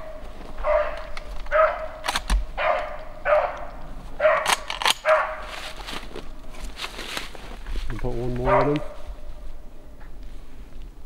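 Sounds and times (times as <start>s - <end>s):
dog baying: 0.0s - 2.0s, 2.6s - 5.5s, 8.3s - 9.0s.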